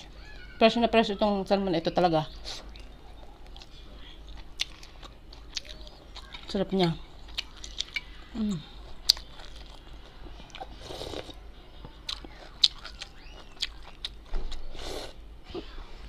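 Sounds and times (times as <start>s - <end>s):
wet chewing and lip smacks: 2.5s - 8.1s, 12.1s - 14.6s.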